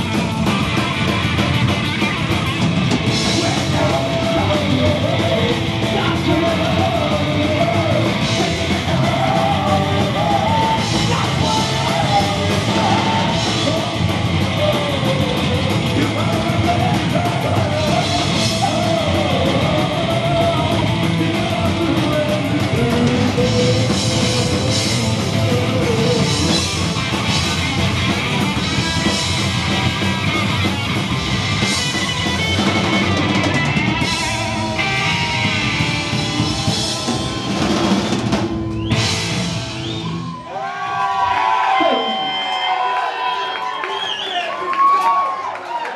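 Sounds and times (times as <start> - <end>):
punk rock band playing: 0.0 - 40.5
person singing: 3.1 - 26.8.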